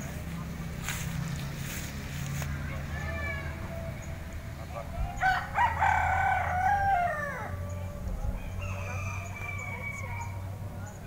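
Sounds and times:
rooster crowing: 5.0s - 10.5s.

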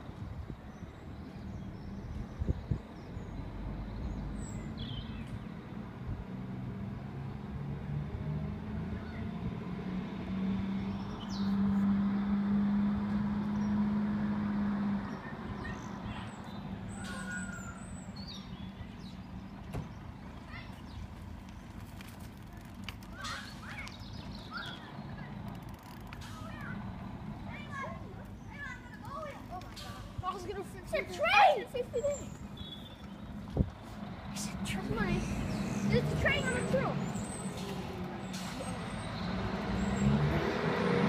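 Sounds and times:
truck diesel engine under load: 5.6s - 21.7s, 24.2s - 31.1s, 31.7s - 41.0s
faint bird chirps: 31.9s - 33.3s.

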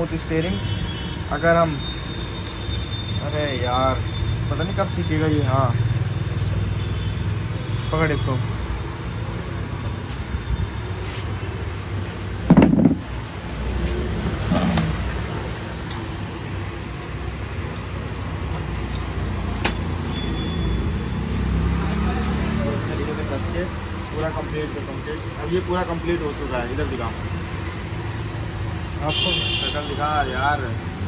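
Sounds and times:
dull thump: 12.5s - 13.1s.

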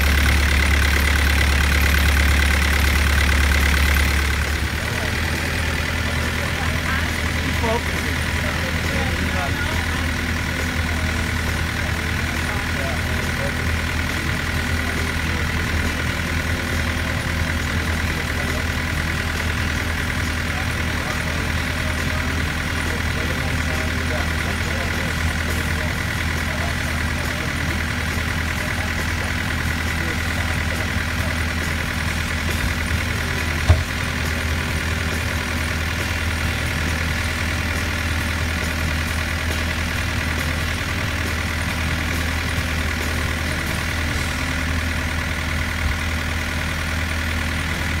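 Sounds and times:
boat engine running: 0.0s - 48.0s
sharp knock: 33.7s - 34.0s.

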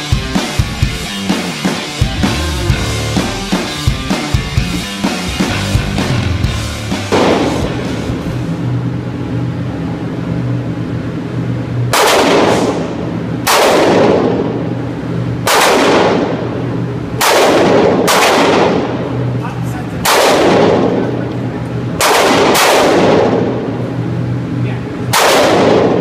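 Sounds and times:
pistol shots echoing indoors: 7.1s - 7.8s, 11.9s - 14.8s, 15.4s - 19.4s, 20.0s - 23.8s, 25.1s - 26.0s.

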